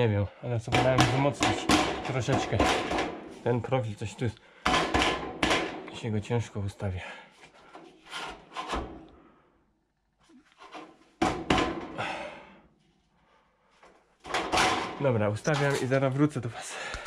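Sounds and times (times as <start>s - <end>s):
drywall framing scraping: 0.6s - 3.8s, 4.6s - 6.0s, 7.4s - 9.1s, 10.2s - 12.2s, 13.8s - 16.2s.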